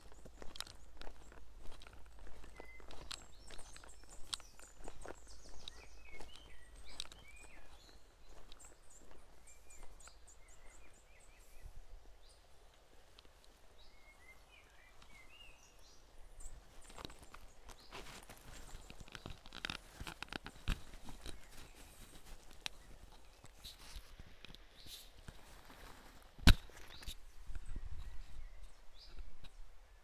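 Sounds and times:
footsteps crunching on shingle: 0:00.0 - 0:10.3, 0:16.5 - 0:27.2
small birds chirping: 0:00.0 - 0:30.0.

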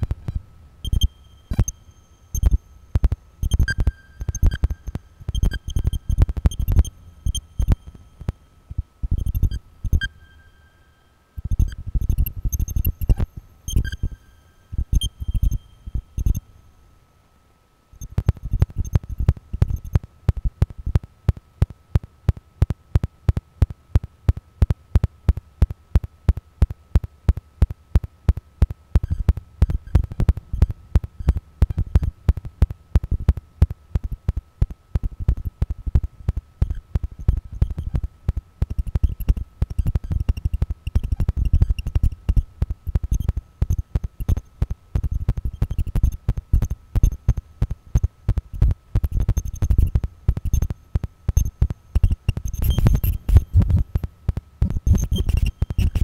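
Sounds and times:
faint steady high tone: 0:00.0 - 0:17.0
electronic low thuds and clicks: 0:29.6 - 0:56.0.

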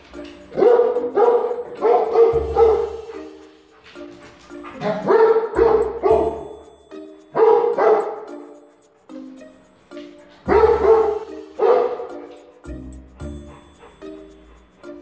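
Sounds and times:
background music: 0:00.0 - 0:15.0
dog barking: 0:00.4 - 0:03.4, 0:04.5 - 0:06.7, 0:07.3 - 0:08.4, 0:10.4 - 0:12.5.

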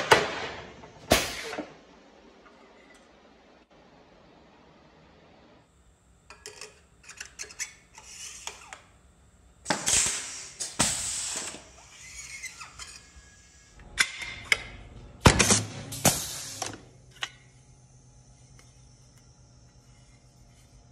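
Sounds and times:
hiss: 0:09.9 - 0:12.2, 0:16.0 - 0:16.8.

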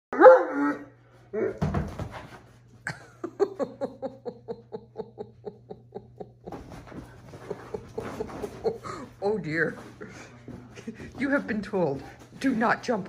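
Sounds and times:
person laughing: 0:02.9 - 0:09.1.

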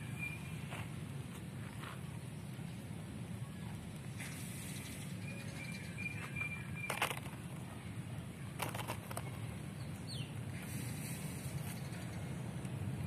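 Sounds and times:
small bird chirp: 0:04.2 - 0:07.0.

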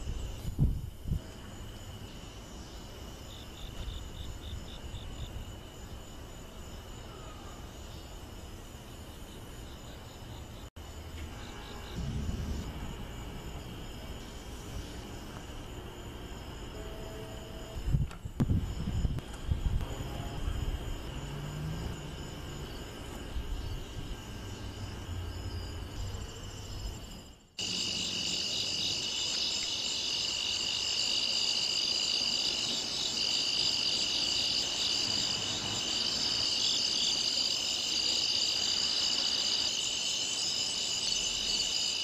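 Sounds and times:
night insects trilling: 0:00.0 - 0:42.0
faint low rumble: 0:11.0 - 0:16.3.

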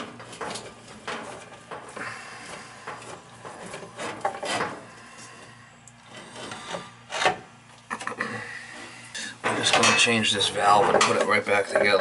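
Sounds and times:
hands rubbing and scraping fittings: 0:00.0 - 0:07.5.

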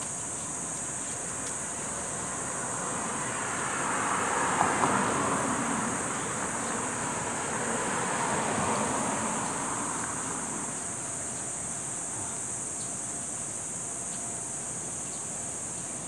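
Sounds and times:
road traffic: 0:00.0 - 0:16.0
vehicle passing: 0:01.7 - 0:11.3.

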